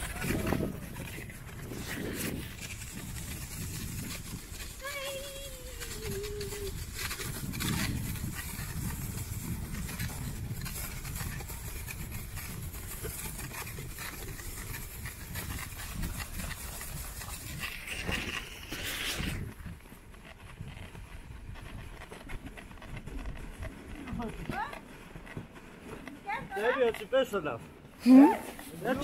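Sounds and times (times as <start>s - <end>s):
scraping rush: 0.0s - 29.0s
sledge runners hissing over snow: 0.0s - 29.0s.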